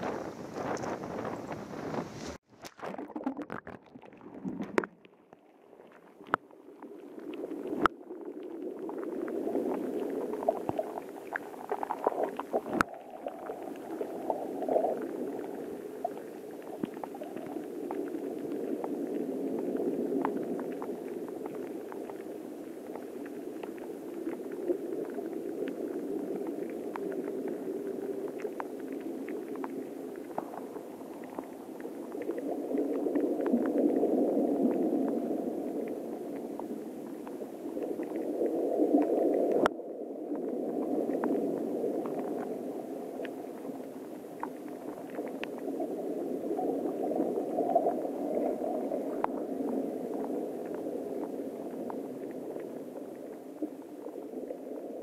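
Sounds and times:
underwater waves lapping: 0:00.0 - 0:39.7.

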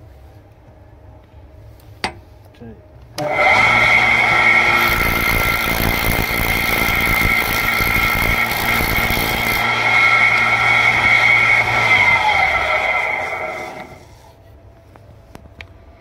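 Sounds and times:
rotary drum machine whining: 0:03.2 - 0:14.3.

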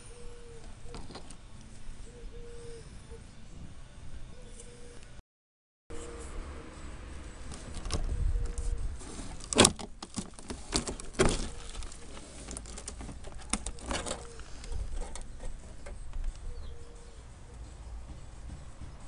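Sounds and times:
low rumble of handling noise: 0:06.0 - 0:19.0
rusted sheet metal tearing: 0:09.3 - 0:15.9.

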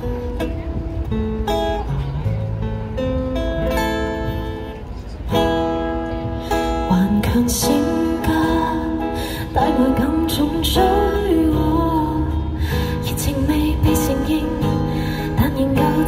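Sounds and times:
person singing: 0:06.9 - 0:16.0.

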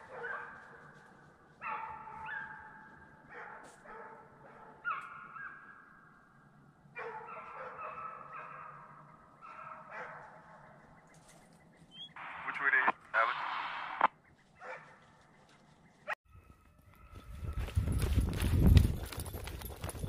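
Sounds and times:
hounds baying: 0:00.0 - 0:05.9, 0:06.9 - 0:12.1, 0:14.5 - 0:15.2.

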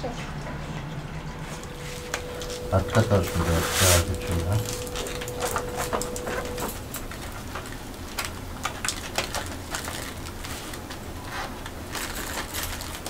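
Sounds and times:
steady low hum: 0:00.0 - 0:08.8
foil containers clattering: 0:02.3 - 0:13.0.

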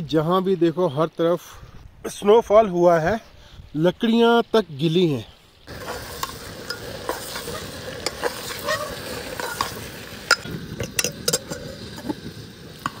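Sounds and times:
frying sizzle: 0:03.8 - 0:13.0
ladle scraping metal pot: 0:05.7 - 0:12.2.

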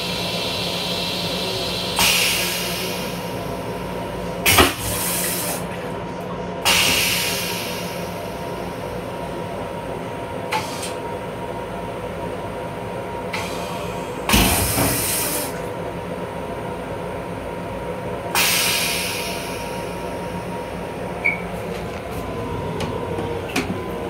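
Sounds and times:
railcar hum: 0:00.0 - 0:24.0
hiss: 0:00.2 - 0:03.2, 0:06.7 - 0:08.0, 0:13.4 - 0:15.6, 0:18.4 - 0:19.8
toilet flushing rush: 0:13.3 - 0:15.8.

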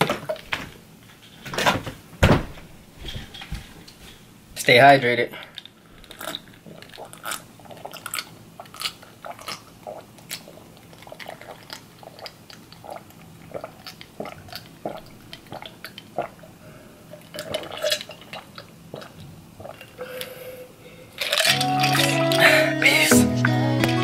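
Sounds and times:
man gulping water: 0:05.4 - 0:20.6.

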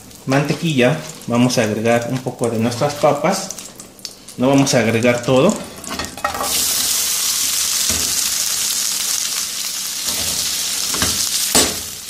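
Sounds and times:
potatoes sizzling in butter: 0:00.0 - 0:12.0.

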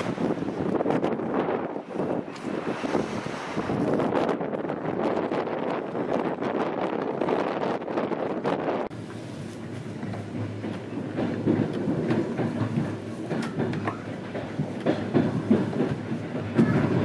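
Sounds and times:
train low rumble: 0:00.0 - 0:17.0
train wheels clicking over rail joints: 0:08.9 - 0:17.0.

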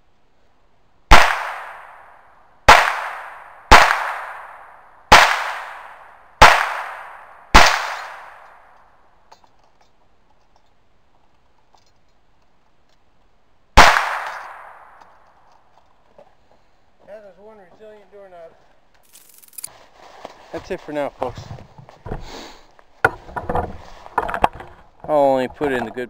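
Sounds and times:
gunshots echoing: 0:01.1 - 0:09.0, 0:13.8 - 0:15.2.

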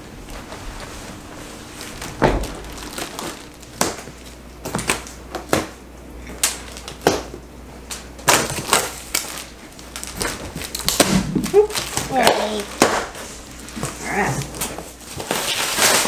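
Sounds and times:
packing straps cracking and scraping: 0:01.8 - 0:05.1, 0:08.3 - 0:16.0.

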